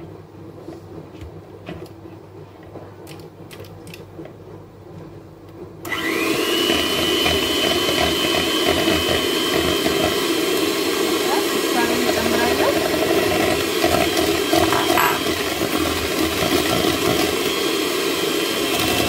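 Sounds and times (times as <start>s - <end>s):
electric hand mixer whine: 5.8s - 19.0s.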